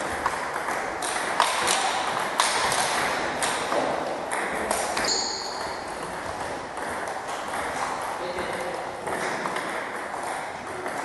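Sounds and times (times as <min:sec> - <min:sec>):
brief high squeak: 0:05.0 - 0:05.6.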